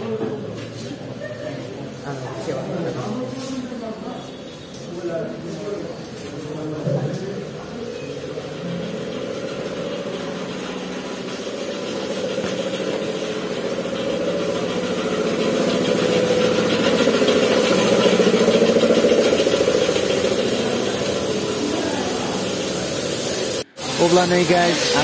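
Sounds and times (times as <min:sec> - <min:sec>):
motor running with fast pulse: 0:07.4 - 0:25.0.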